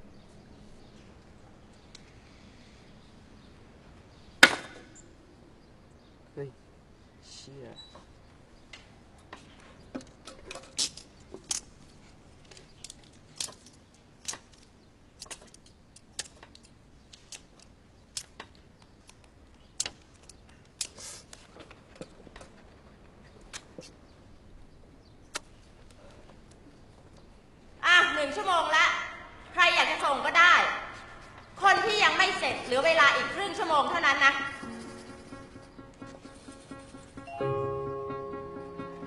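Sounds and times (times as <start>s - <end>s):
pencil writing on paper: 34.6s - 37.2s.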